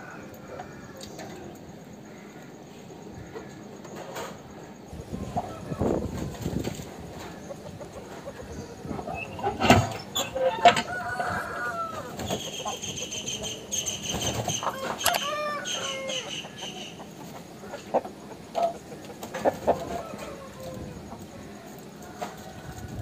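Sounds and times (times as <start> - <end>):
chickens clucking: 0.0 - 23.0
rooster crowing: 10.2 - 12.2, 14.5 - 17.0, 19.6 - 23.0.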